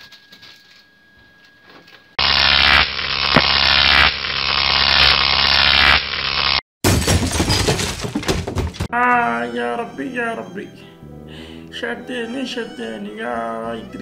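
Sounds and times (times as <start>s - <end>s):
electric buzzing crackle: 2.2s - 6.6s.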